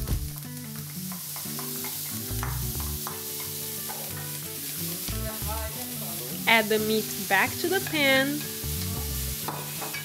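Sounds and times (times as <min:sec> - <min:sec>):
soft background music: 0:00.0 - 0:10.0
vegetables sizzling in a frying pan: 0:00.0 - 0:10.0
spoon stirring in a pan: 0:01.1 - 0:05.0, 0:07.1 - 0:10.0.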